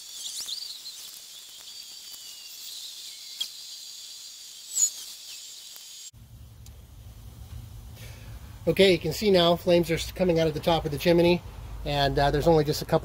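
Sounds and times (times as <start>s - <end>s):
insects trilling: 0.0s - 6.2s
charcoal pops and crackles: 0.0s - 6.8s.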